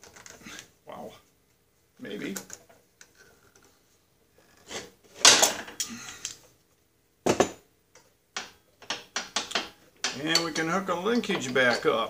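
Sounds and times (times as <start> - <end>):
metal tools clattering: 8.4 - 12.0.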